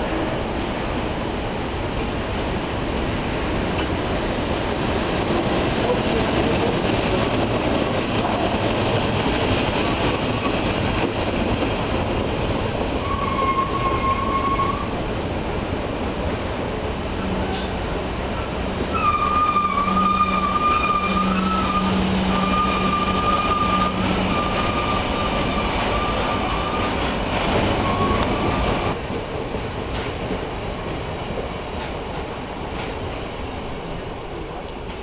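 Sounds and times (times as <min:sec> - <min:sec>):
freight train rumbling past: 0:00.0 - 0:35.0
high-pitched wheel squeal: 0:13.0 - 0:15.0, 0:17.2 - 0:27.1, 0:27.7 - 0:28.9.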